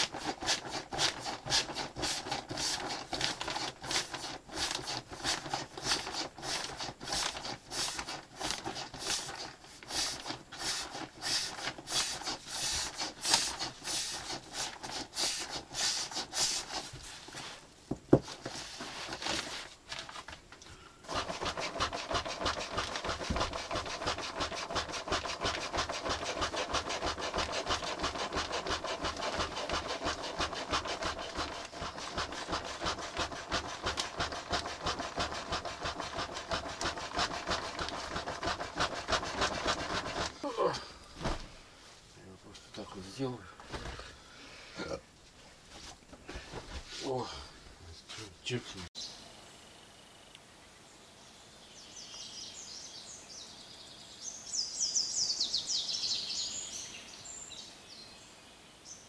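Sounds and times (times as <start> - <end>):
hand saw cutting wood: 0.0 - 17.6, 21.1 - 40.8.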